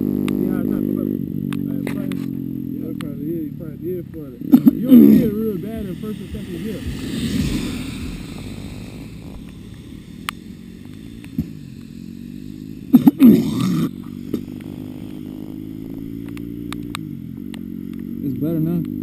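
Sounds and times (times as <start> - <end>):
dirt bike engine idling: 0.0 - 19.0
engine revving burst: 0.0 - 19.0
sharp clicks: 9.2 - 11.9, 16.1 - 18.1.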